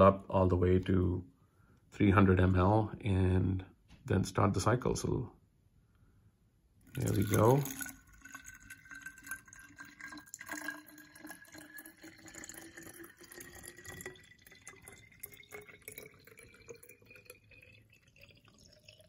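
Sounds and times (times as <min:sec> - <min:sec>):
water pouring into bottle: 0:06.8 - 0:19.0.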